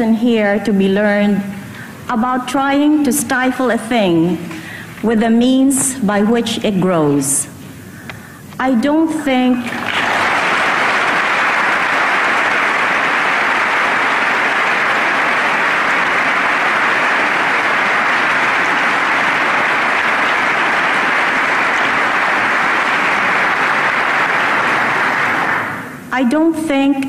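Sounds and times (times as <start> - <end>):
audience applauding: 9.7 - 26.0.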